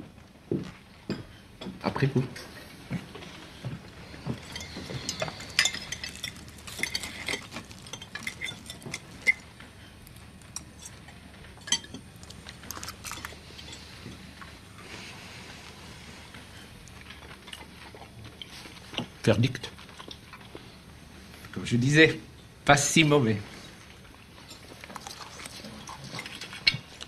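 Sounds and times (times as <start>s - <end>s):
cutlery clinking on plates: 4.4s - 9.4s.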